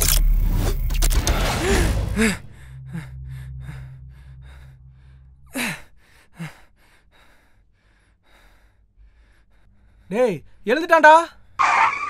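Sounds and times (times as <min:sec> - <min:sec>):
man breathing hard: 0:01.6 - 0:10.6.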